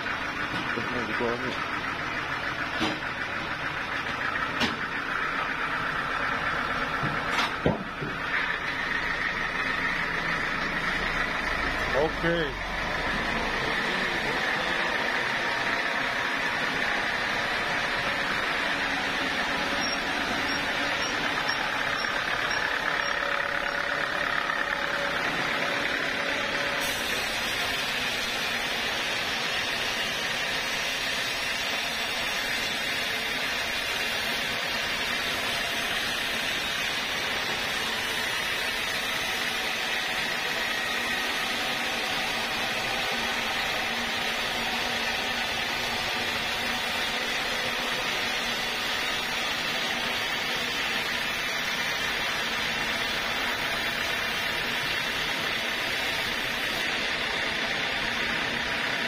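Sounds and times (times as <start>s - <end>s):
band saw cutting log: 6.7s - 59.0s.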